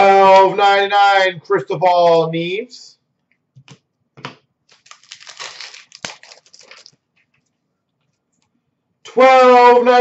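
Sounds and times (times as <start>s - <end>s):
cards and wrapper rustling: 4.7s - 7.5s.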